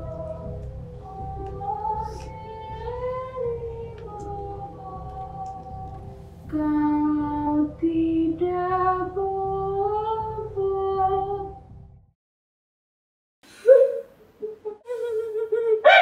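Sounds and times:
woman singing: 0.0s - 11.6s.

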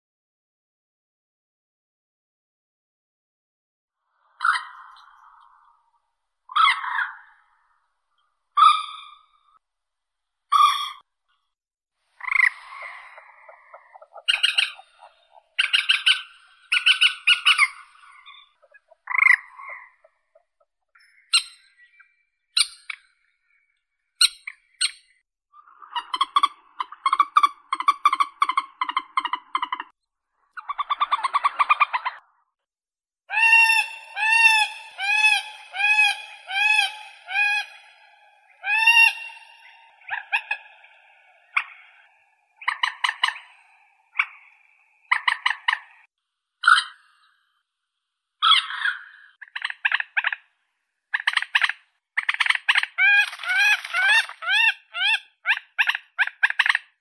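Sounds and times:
moorhen calling: 6.5s - 7.4s, 12.2s - 20.1s, 33.3s - 47.2s.

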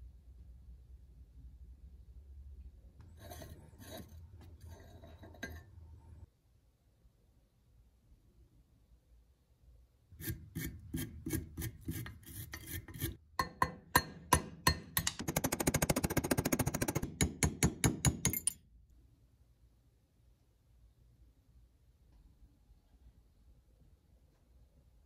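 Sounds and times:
metal tool scraping metal: 3.1s - 5.8s, 10.2s - 13.2s, 18.1s - 18.6s.

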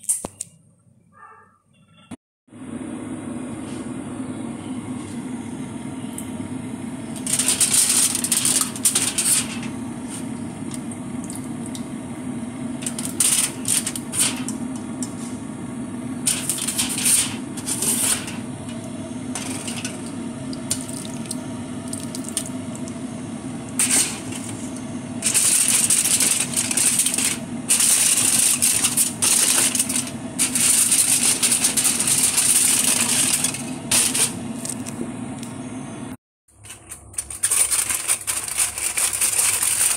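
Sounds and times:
steady low hum: 2.5s - 36.2s
aluminium foil crinkling: 7.2s - 9.6s, 12.8s - 14.5s, 16.3s - 18.4s, 25.2s - 34.9s, 36.6s - 39.9s.

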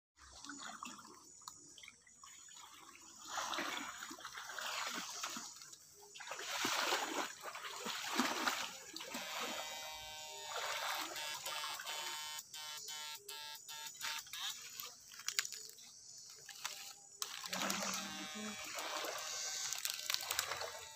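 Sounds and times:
water splashing from wading: 0.2s - 12.4s, 16.4s - 20.9s
steady multi-pitch tone: 9.1s - 14.8s, 16.7s - 20.9s.

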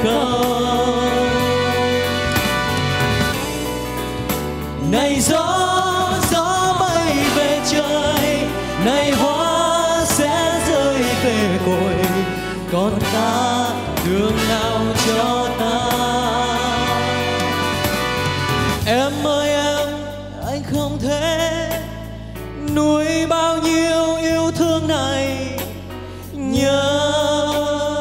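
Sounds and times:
instrumental accompaniment: 0.0s - 20.4s
person singing a ballad: 0.0s - 28.0s.

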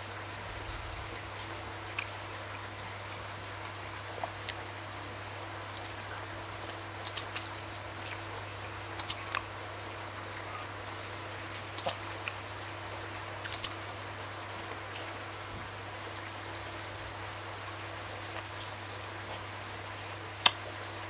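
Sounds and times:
low hum and hiss: 0.0s - 21.0s
wet mouth chewing clicks: 9.0s - 9.4s.

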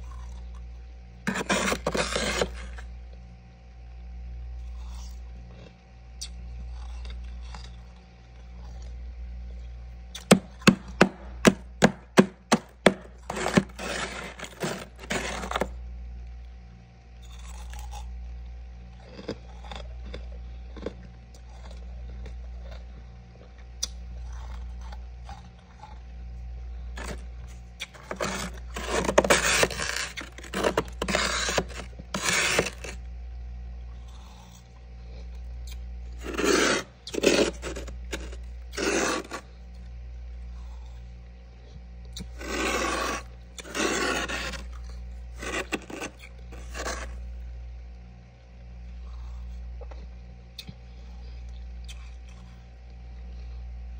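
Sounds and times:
steady low hum: 0.0s - 53.9s
spoon scraping frost: 1.3s - 2.9s, 10.2s - 15.8s, 27.0s - 27.2s, 27.8s - 33.0s, 35.7s - 39.6s, 42.2s - 47.2s
sharp knocks: 10.3s - 13.1s.

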